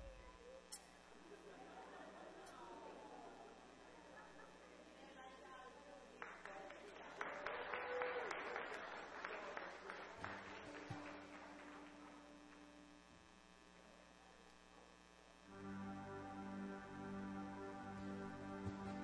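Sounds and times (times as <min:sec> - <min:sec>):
faint steady hum: 0:00.0 - 0:19.0
congregation applauding: 0:06.2 - 0:12.9.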